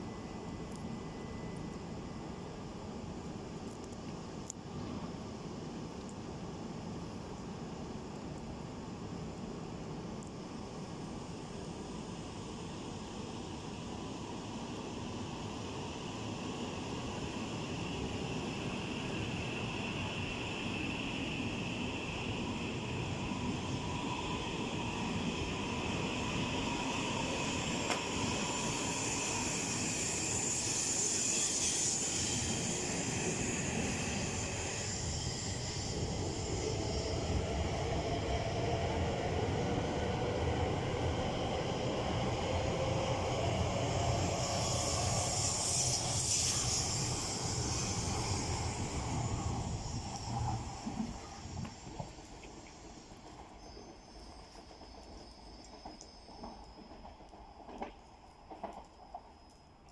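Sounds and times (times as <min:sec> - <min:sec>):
train wheels rumbling on rail: 0:13.3 - 0:59.7.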